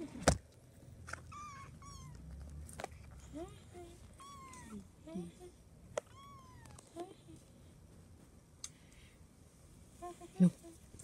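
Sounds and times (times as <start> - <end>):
kittens mewing: 1.1 - 2.3, 4.0 - 4.9, 6.0 - 7.0.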